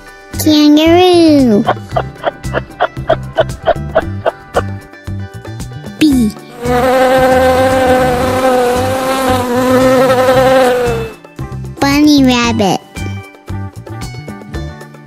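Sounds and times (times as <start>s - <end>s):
light background music: 0.0s - 15.0s
bee buzzing: 1.6s - 4.8s, 6.5s - 11.2s.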